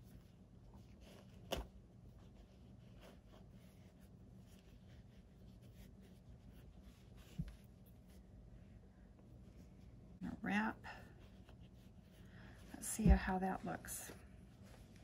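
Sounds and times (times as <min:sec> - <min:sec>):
fabric rustling and scratching: 0:00.0 - 0:08.4
low steady hum: 0:00.0 - 0:15.0.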